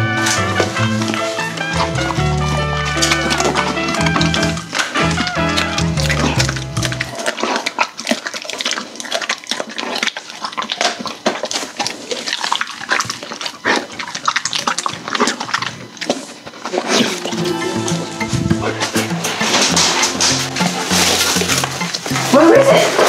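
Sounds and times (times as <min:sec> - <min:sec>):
dog chewing crunchy treats: 0:00.0 - 0:17.5, 0:18.4 - 0:23.0.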